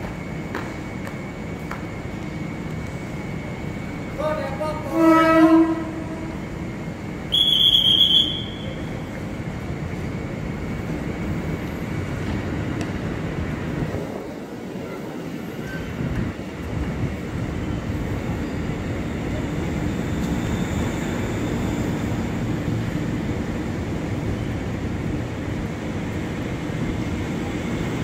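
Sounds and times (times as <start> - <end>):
electric train pulling in: 0.0 - 28.0
train rumble: 0.0 - 28.0
low multi-tone train horn: 4.8 - 6.4, 7.3 - 8.9
high-pitched train horn toot: 4.9 - 6.3, 7.3 - 8.9.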